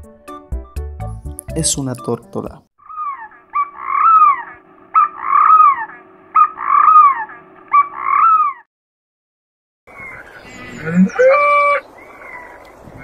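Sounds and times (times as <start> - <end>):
dove calling: 2.8 - 8.7, 9.9 - 13.0.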